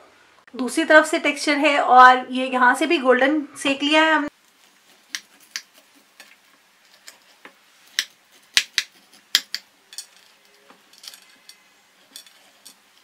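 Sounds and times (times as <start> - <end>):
knife cutting crisp crust on plate: 4.6 - 9.6.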